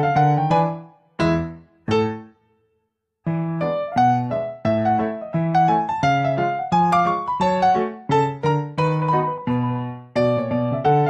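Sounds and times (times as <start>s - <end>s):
piano chords: 0.0s - 2.3s, 3.2s - 11.0s.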